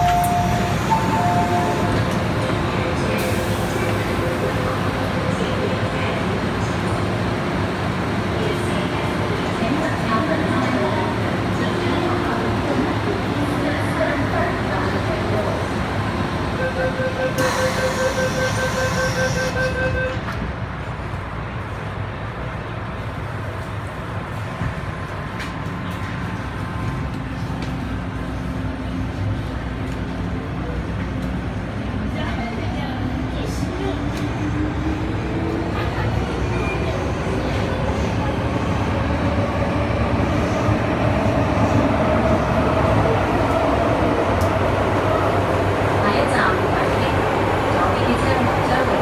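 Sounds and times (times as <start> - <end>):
door warning beeping: 0.0 - 2.0
train low hum: 0.0 - 49.0.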